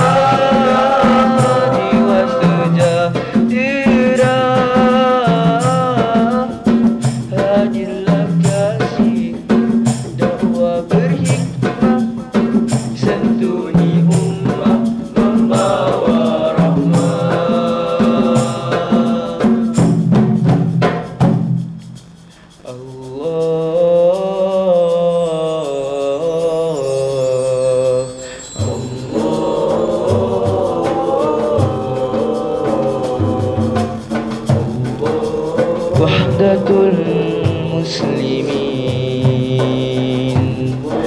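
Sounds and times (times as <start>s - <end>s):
male vocal group singing in harmony: 0.0s - 20.3s, 22.6s - 41.0s
hand percussion beat: 0.0s - 41.0s.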